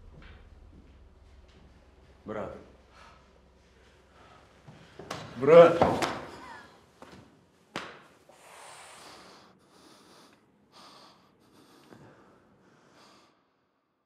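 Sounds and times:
men breathing: 2.7s - 5.4s, 8.2s - 13.8s.

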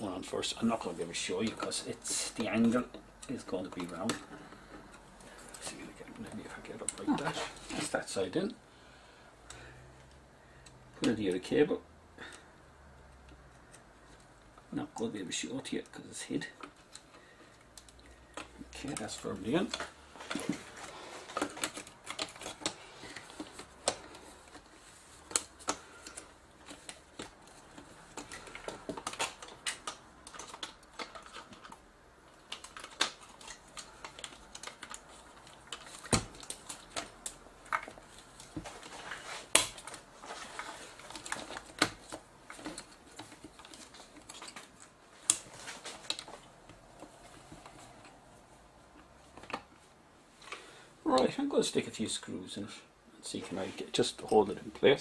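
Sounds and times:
hands fitting camera parts clicking: 16.6s - 48.2s
plastic snaps: 16.6s - 48.2s.

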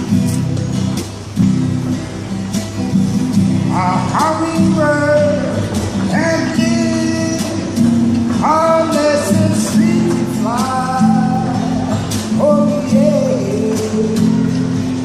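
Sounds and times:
strummed guitar: 0.0s - 15.0s
man singing: 3.7s - 15.0s.

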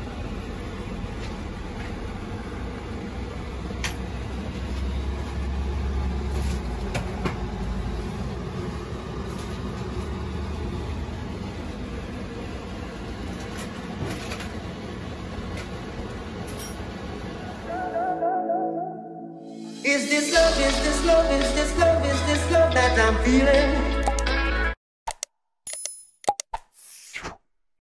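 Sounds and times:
low rumbling noise: 0.0s - 19.5s.

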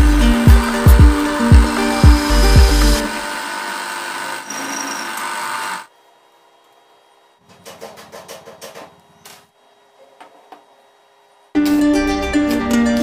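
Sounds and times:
drill press cutting steel: 0.0s - 5.9s.

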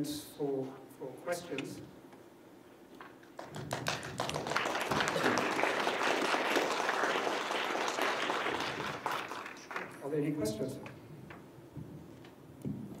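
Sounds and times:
audience applauding: 3.4s - 10.0s.

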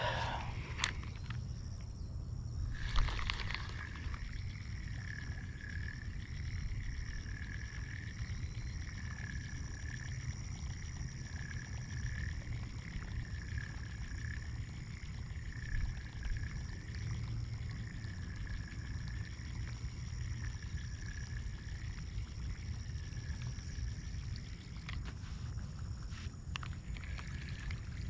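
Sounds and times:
fishing reel gear whirring: 0.0s - 1.5s, 2.6s - 25.1s, 25.8s - 28.0s.

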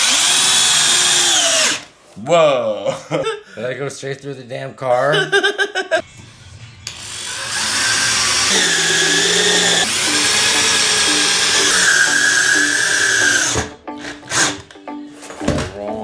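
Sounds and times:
drill motor whining: 0.0s - 1.9s, 6.8s - 14.7s.

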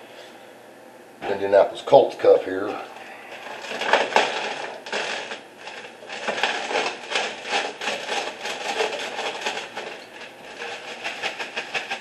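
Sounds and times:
eggshells crunching in plastic bag: 2.5s - 12.0s.

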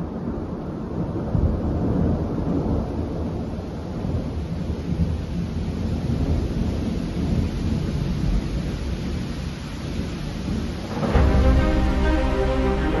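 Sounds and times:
thunder rumbling: 10.0s - 13.0s.

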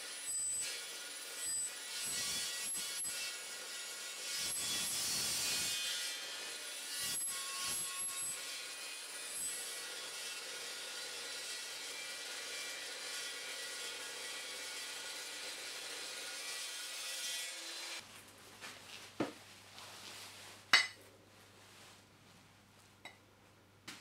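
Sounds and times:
chop saw cutting steel: 0.0s - 18.0s.

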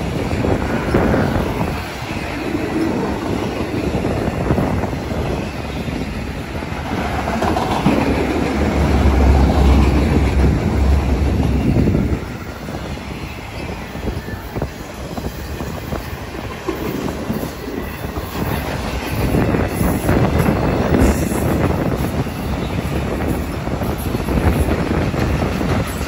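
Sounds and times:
low train rumble: 0.0s - 26.0s
train wheels clacking on rails: 0.0s - 26.0s.

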